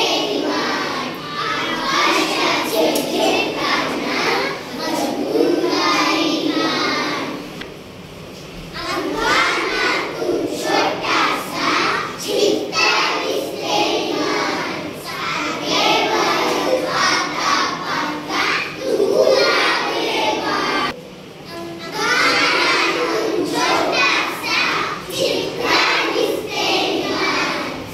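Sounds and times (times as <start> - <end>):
children singing in unison: 0.0 - 7.6, 8.8 - 21.0, 21.8 - 27.9.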